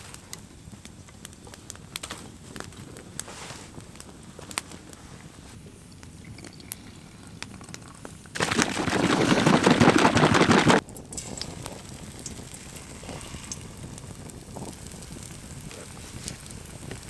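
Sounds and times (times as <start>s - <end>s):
bottle shaken rattling slosh: 8.4s - 10.8s
batter sizzling in frying pan: 10.8s - 17.0s.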